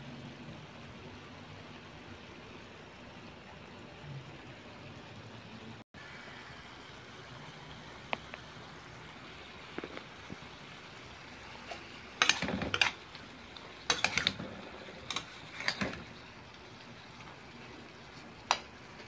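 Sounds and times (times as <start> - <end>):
frying sizzle: 0.0 - 19.0
metal spatula scraping pan: 11.6 - 13.1, 13.8 - 16.2.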